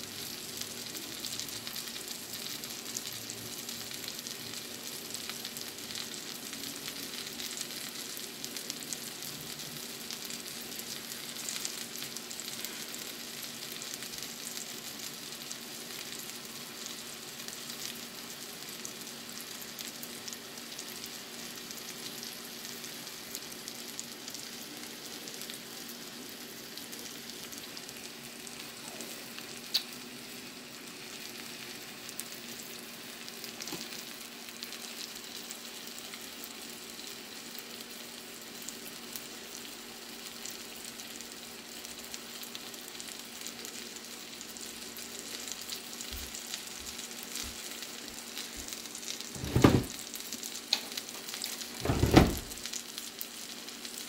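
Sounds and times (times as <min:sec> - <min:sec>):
fish sizzling in a pan: 0:00.0 - 0:54.0
loud low thump: 0:49.4 - 0:49.9, 0:51.8 - 0:52.6.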